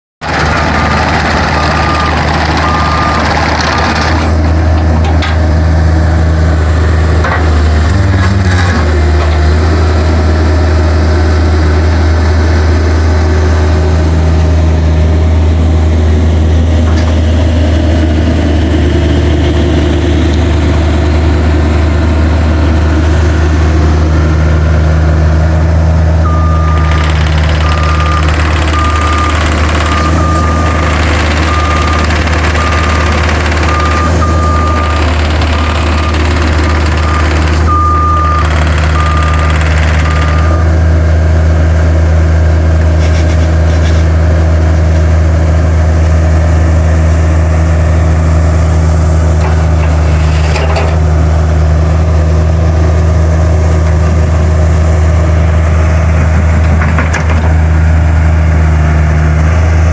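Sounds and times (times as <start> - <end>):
excavator diesel engine running: 0.2 - 59.9
electronic beeper short beeps: 26.3 - 36.2.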